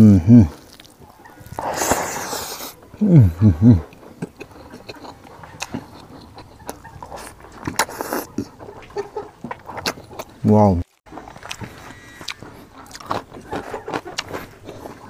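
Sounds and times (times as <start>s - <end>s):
wet chewing and lip-smacking: 0.5s - 3.0s, 3.8s - 15.0s
man slurping food: 1.5s - 3.9s, 7.2s - 8.5s
man humming mm: 1.6s - 3.9s.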